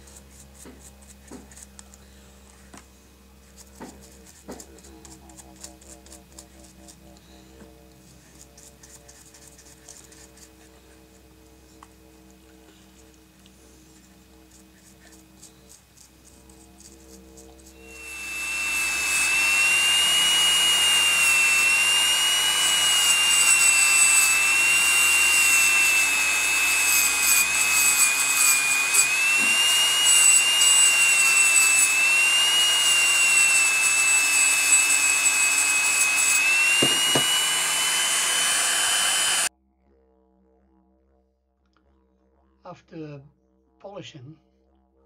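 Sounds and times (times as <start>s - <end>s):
rotary tool whining: 12.2s - 39.5s.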